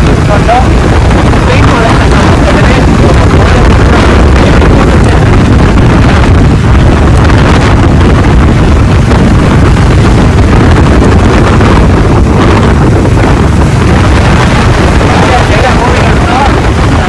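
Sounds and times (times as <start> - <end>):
road noise: 0.0 - 17.0
wind buffeting microphone: 0.0 - 17.0.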